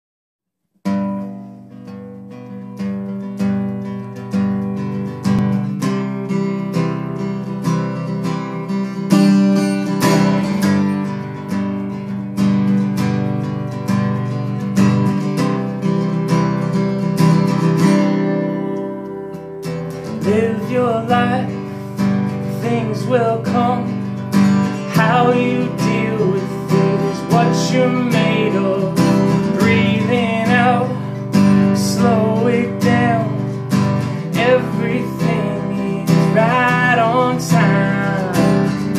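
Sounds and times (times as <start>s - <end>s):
acoustic guitar strumming: 0.8s - 38.9s
man singing: 20.0s - 38.9s.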